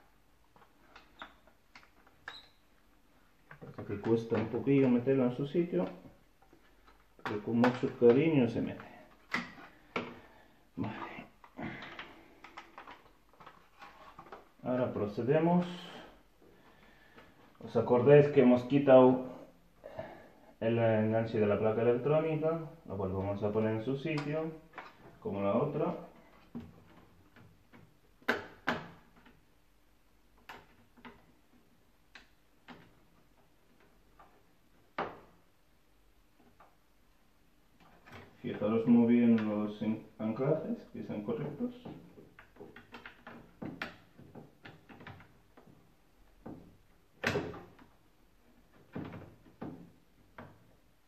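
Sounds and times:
plastic clicks and knocks: 41.8 - 50.8.

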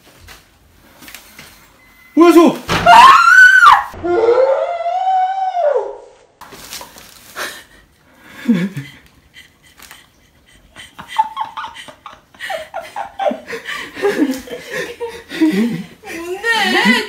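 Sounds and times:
woman laughing: 8.4 - 17.0.

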